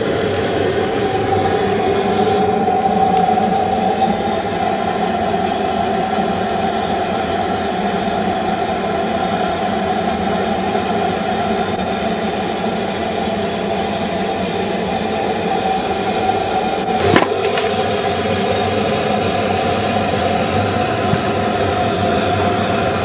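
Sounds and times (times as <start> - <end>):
engine humming steadily: 0.0 - 23.0.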